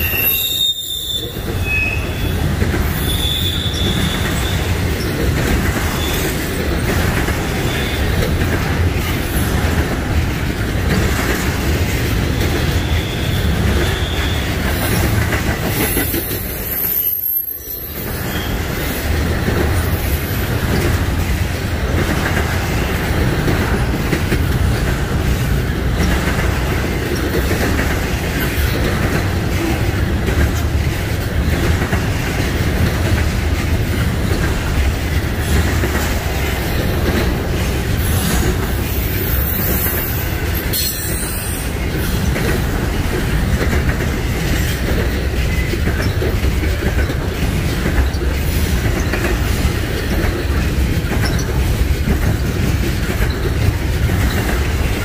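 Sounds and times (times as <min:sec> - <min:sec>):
high-pitched wheel squeal: 0:00.0 - 0:04.7
train wheels rumbling over rails: 0:00.0 - 0:55.0.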